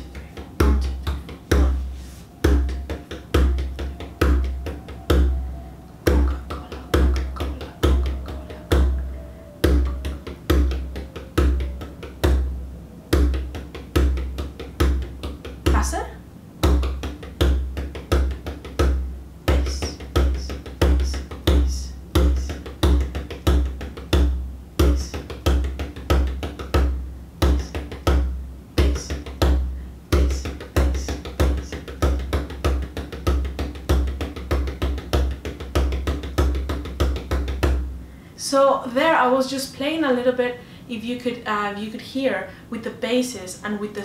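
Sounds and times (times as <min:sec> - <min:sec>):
frame drum played with stick: 0:06.1 - 0:15.9, 0:16.6 - 0:37.9.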